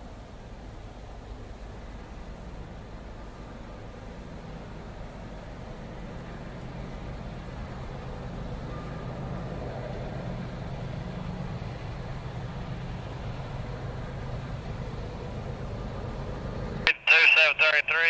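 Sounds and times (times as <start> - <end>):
locomotive engine rumble: 0.0 - 18.0.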